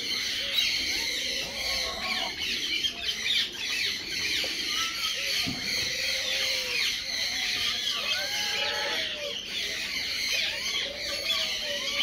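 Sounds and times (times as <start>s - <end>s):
birds chirping: 0.0s - 12.0s
geese and ducks squawking: 0.0s - 12.0s.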